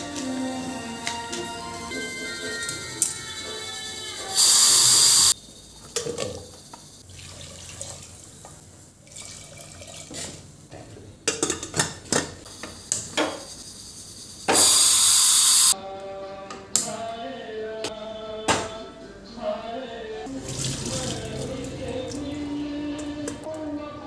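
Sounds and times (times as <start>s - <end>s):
soft music: 0.0s - 5.4s, 15.8s - 24.0s
tap water running: 5.9s - 10.4s, 20.3s - 22.3s.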